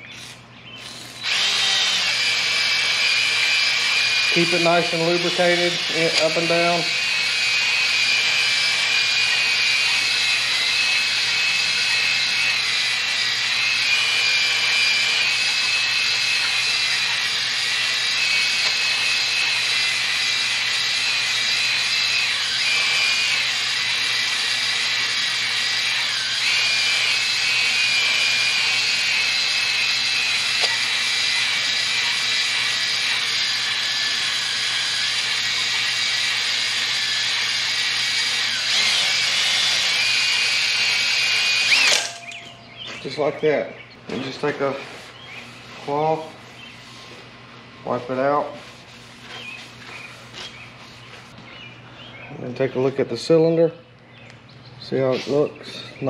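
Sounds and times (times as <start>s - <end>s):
cordless drill whining: 0.0s - 42.6s
hone stones grinding metal: 0.1s - 43.2s.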